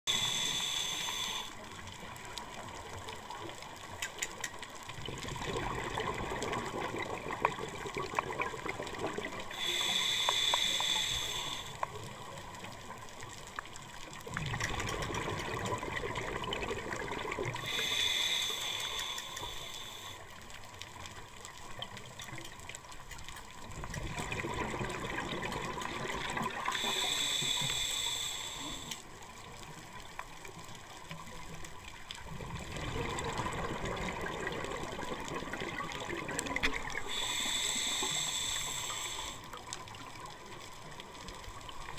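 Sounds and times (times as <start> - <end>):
regulator inhale hiss: 0.0 - 2.0, 9.3 - 12.1, 17.4 - 20.5, 26.2 - 29.3, 37.0 - 40.0
exhaled bubbles rushing: 5.1 - 9.4, 14.3 - 17.6, 23.8 - 26.8, 32.3 - 37.1.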